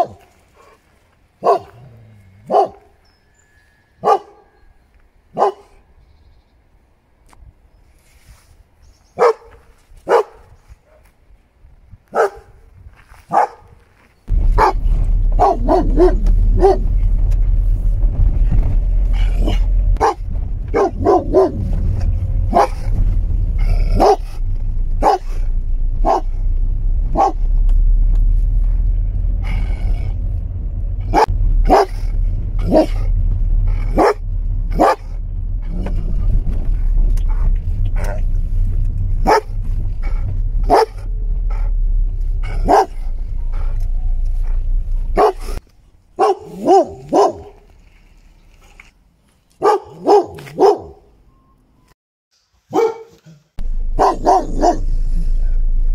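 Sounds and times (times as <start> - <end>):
dog barking: 0.0 - 0.3, 1.4 - 3.0, 4.0 - 4.6, 5.3 - 5.8, 9.2 - 11.1, 12.1 - 12.6, 13.3 - 13.7, 14.6 - 14.8, 15.4 - 16.9, 19.5 - 21.7, 22.5 - 22.8, 23.9 - 24.4, 25.0 - 25.4, 26.0 - 26.3, 27.1 - 27.4, 31.1 - 33.0, 33.9 - 35.0, 39.2 - 39.5, 40.6 - 41.0, 42.4 - 43.7, 45.2 - 45.6, 46.2 - 47.6, 49.6 - 51.1, 52.7 - 53.4, 54.0 - 55.0
loud low rumble: 14.3 - 45.6, 53.6 - 55.9.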